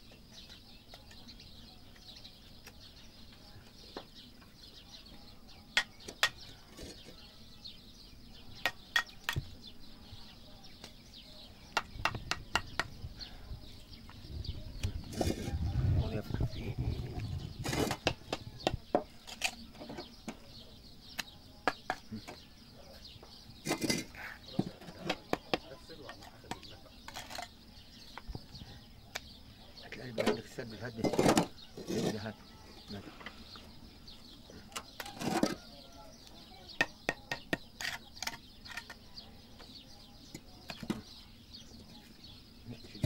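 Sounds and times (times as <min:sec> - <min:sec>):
birds chirping: 0:00.0 - 0:43.0
trowel scraping and tapping bricks: 0:05.7 - 0:07.2, 0:08.6 - 0:09.6, 0:17.6 - 0:20.4, 0:21.2 - 0:22.4, 0:23.6 - 0:28.4, 0:30.2 - 0:32.3, 0:36.7 - 0:39.2, 0:40.2 - 0:41.1.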